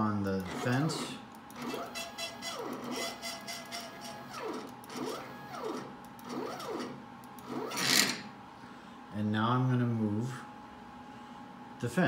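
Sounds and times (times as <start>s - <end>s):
stepper motors whining: 0.4s - 8.2s.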